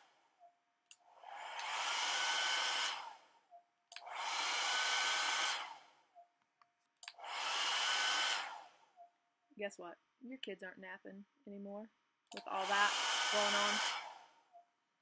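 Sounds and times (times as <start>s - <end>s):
hair dryer motor whine and air rush: 1.2s - 3.2s, 4.0s - 5.9s, 7.1s - 8.8s, 12.4s - 14.3s.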